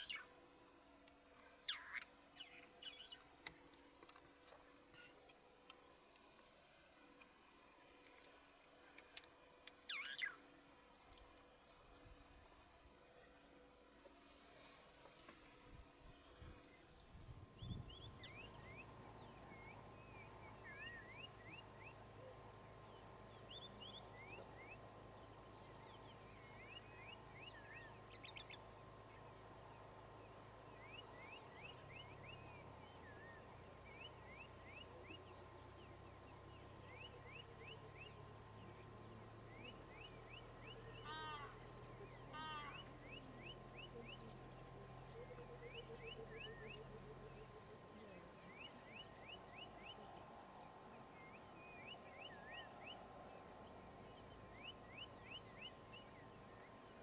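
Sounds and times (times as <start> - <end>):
birds chirping: 0.0 - 57.0
low steady hum: 0.0 - 57.0
harsh bird calls: 36.5 - 50.1.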